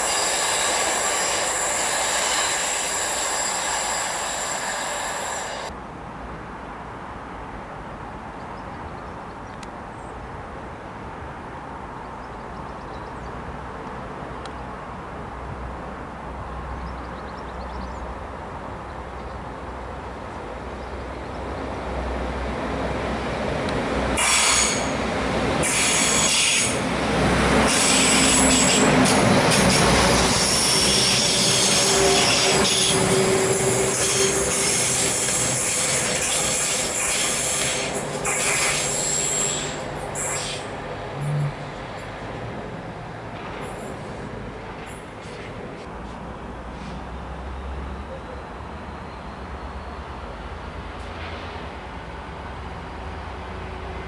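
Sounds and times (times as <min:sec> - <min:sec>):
train wheels squealing: 0:00.0 - 0:05.7, 0:24.2 - 0:25.0, 0:25.6 - 0:26.8, 0:27.7 - 0:42.1, 0:43.6 - 0:44.1
train running: 0:00.0 - 0:05.8, 0:20.3 - 0:54.0.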